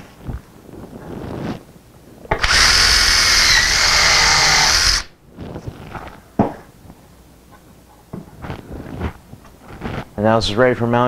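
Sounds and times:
cordless drill boring through plywood: 2.3s - 5.1s.

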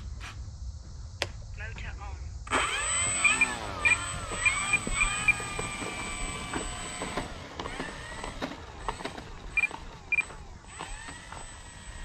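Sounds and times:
rc plane motor whirring: 2.5s - 12.0s.

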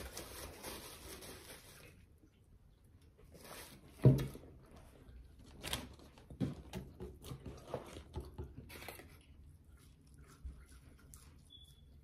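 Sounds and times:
people chewing food: 4.8s - 12.0s.

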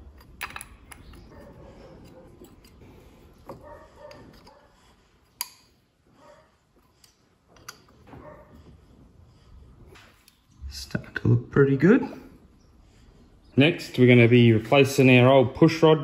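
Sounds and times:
metal parts handling noise: 0.0s - 1.3s.

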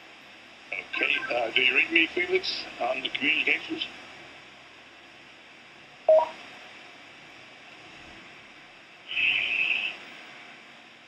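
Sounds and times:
radio static crackle: 0.7s - 3.8s
radio channel hiss: 0.7s - 4.0s, 9.0s - 10.5s.

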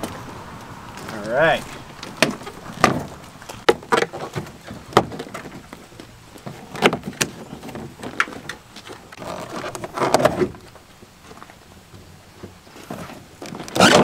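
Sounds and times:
handling noise: 0.0s - 14.0s.

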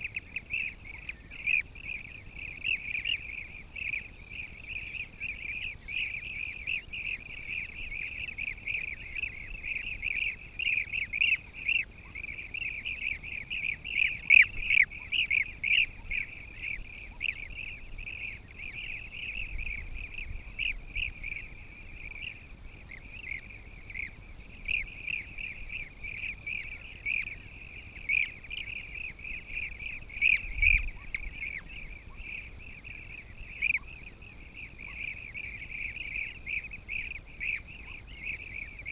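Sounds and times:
birds chirping: 0.0s - 38.9s.

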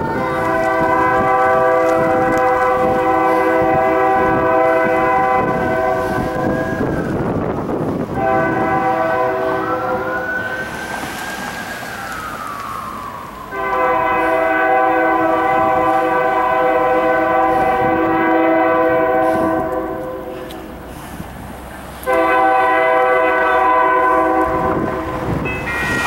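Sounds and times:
locomotive air horn chord: 0.0s - 6.6s, 8.1s - 10.2s, 13.5s - 20.7s, 22.0s - 26.0s.

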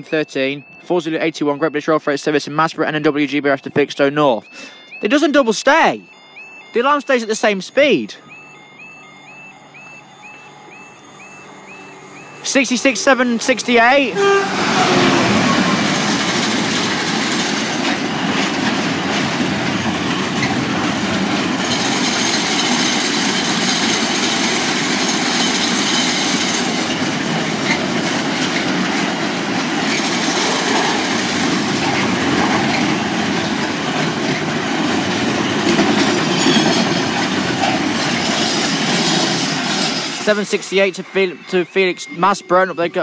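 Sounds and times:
high wheel squeal: 8.2s - 18.6s, 29.6s - 33.7s, 34.3s - 43.0s
train wheels rumbling and clattering: 10.8s - 41.9s.

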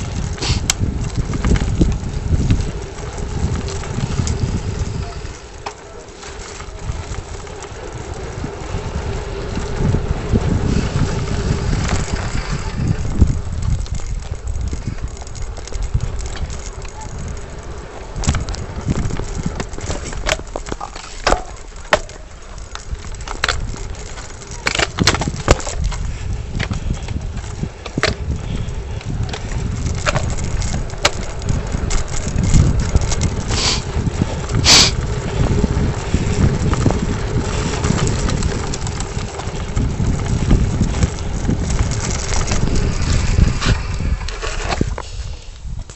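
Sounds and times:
sharp clicks and crunches: 11.5s - 45.9s.

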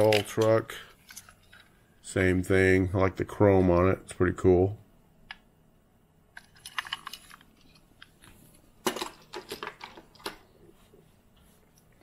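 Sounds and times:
toy cars clicking and clattering: 6.4s - 7.8s, 8.8s - 10.4s.

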